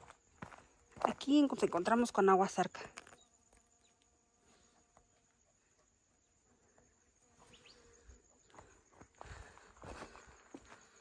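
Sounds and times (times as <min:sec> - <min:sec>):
insect buzzing: 0:01.8 - 0:11.0
soft footsteps: 0:08.3 - 0:11.0.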